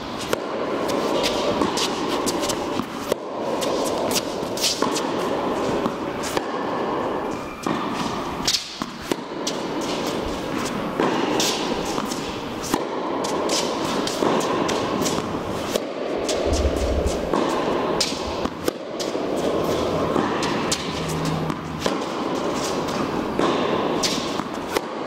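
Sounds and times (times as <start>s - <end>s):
tennis balls struck by rackets: 0.0s - 7.0s, 7.6s - 25.0s
steady background noise: 0.0s - 25.0s.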